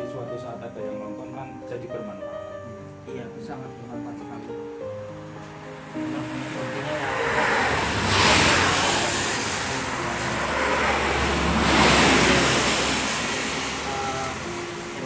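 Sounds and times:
vehicles passing close by: 5.0s - 15.0s.

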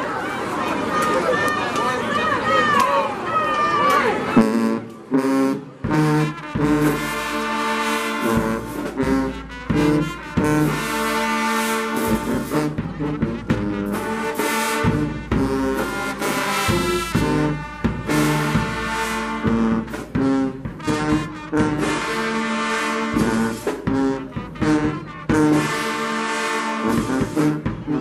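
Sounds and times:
marching band brass playing: 3.8s - 28.0s
drum and cymbal hits: 5.8s - 26.1s, 26.8s - 28.0s.

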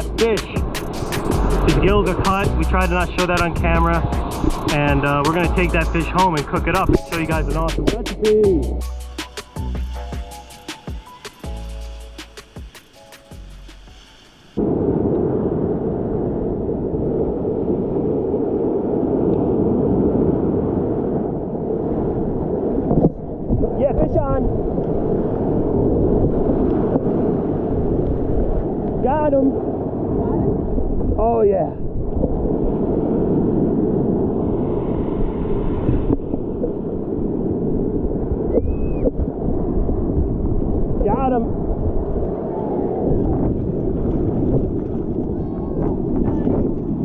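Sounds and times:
breaking surf: 0.0s - 7.9s, 32.0s - 47.0s
wind buffeting microphone: 0.0s - 8.8s, 14.6s - 47.0s.

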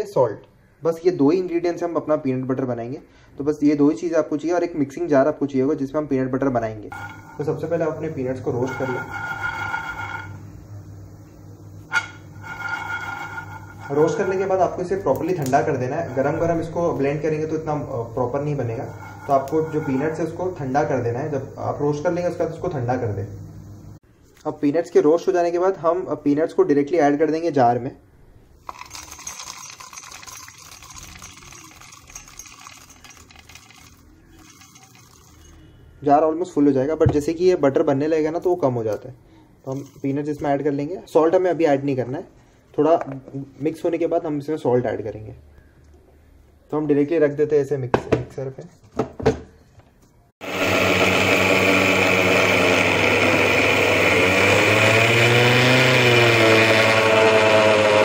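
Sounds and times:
mixer grinder motor grinding: 6.9s - 23.1s, 28.7s - 35.6s, 50.4s - 58.0s
peanuts rattling into metal jar: 28.7s - 35.5s.

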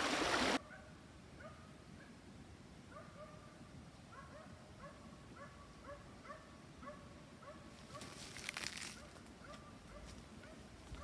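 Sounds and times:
distant dog barking: 0.6s - 2.1s, 2.9s - 8.2s, 9.0s - 11.0s
brief rustle: 7.9s - 9.3s.

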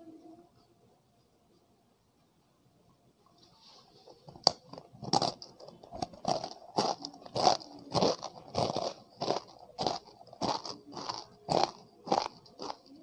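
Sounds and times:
chewing crunches: 4.4s - 13.0s
crisp snack cracking: 4.4s - 13.0s.

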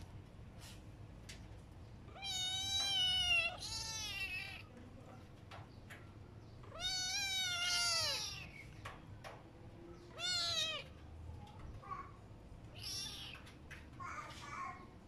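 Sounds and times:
kitten meowing: 2.1s - 4.7s, 6.6s - 8.7s, 10.1s - 10.9s, 12.7s - 13.5s.

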